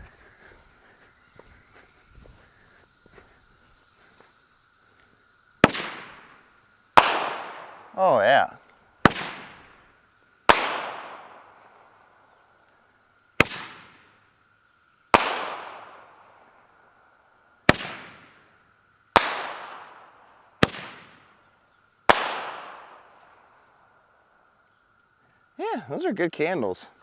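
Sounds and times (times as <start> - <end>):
cicadas buzzing: 0.0 - 27.0
firework bangs echoing: 5.6 - 8.0, 9.0 - 9.8, 10.4 - 11.8, 13.4 - 14.1, 15.1 - 16.2, 17.7 - 18.4, 19.1 - 21.3, 22.1 - 23.1.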